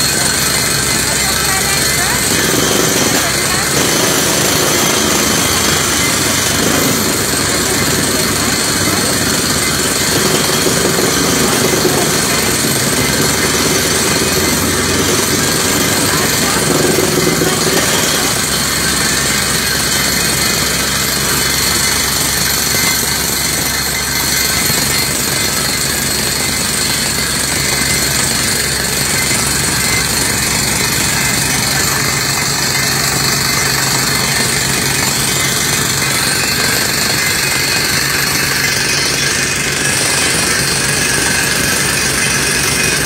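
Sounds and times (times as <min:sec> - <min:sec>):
air hammer drilling: 0:00.0 - 0:43.0
drilling rig engine and compressor: 0:00.0 - 0:43.0.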